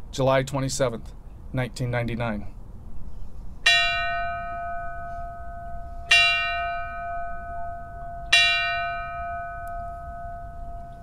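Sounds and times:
bell ringing: 3.7 - 11.0.

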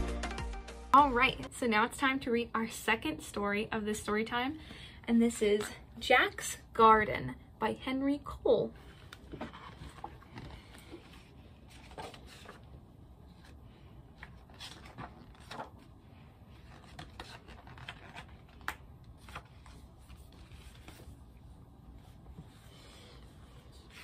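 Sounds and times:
paper rustling: 8.9 - 13.6, 14.2 - 15.9, 16.5 - 21.3.

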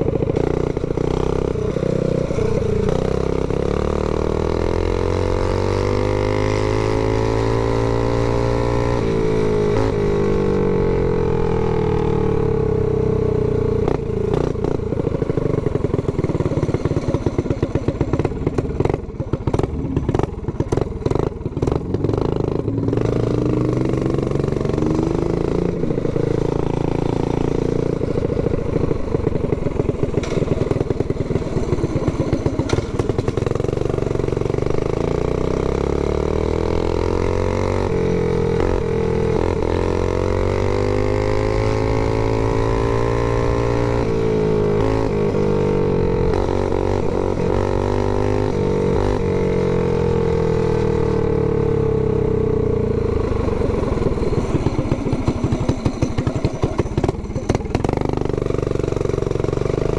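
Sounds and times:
mini bike engine revving: 13.8 - 59.9.

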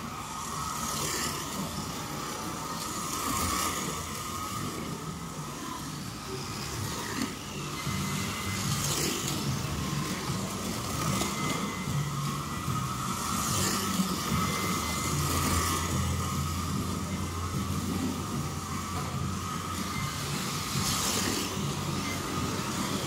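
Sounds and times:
slot car motors whining: 0.0 - 23.0.

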